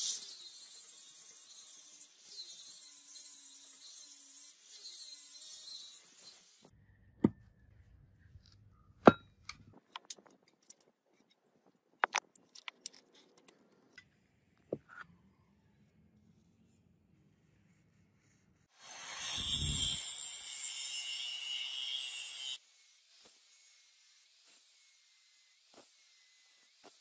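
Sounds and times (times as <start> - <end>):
angle grinder grinding steel: 0.0 - 6.7, 18.8 - 27.0
steel pieces knocking on wood: 9.0 - 9.3.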